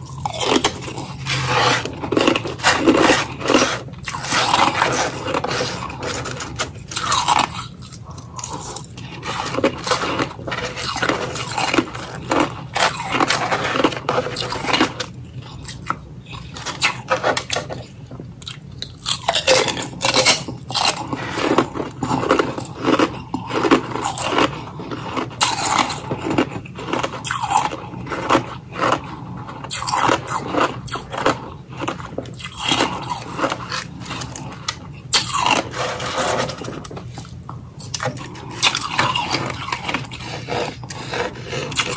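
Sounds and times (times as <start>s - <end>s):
person chewing crushed ice: 0.0s - 41.9s.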